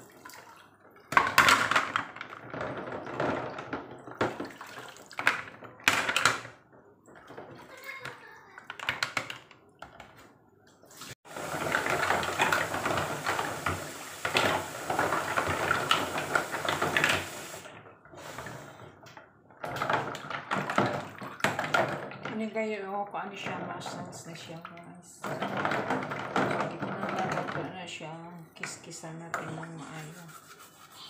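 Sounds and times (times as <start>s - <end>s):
water splashing in basin: 0.0s - 1.1s, 4.3s - 5.3s
tap running into basin: 11.3s - 17.7s.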